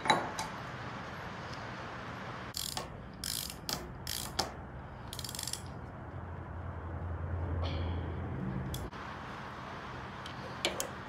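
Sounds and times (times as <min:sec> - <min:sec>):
hand ratchet clicking: 0:02.5 - 0:05.7.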